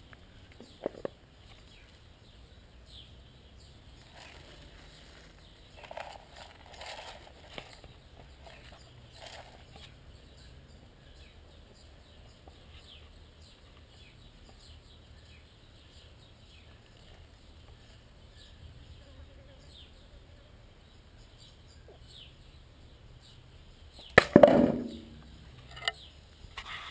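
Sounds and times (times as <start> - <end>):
small birds chirping: 0.0 - 26.9
sharp loud knock: 24.2 - 25.3.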